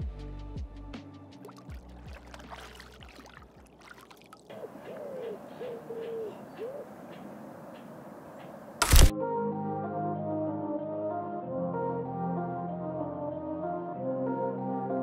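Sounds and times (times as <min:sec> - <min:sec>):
water drips and splashes: 0:01.4 - 0:05.0
bird hooting: 0:04.5 - 0:08.8.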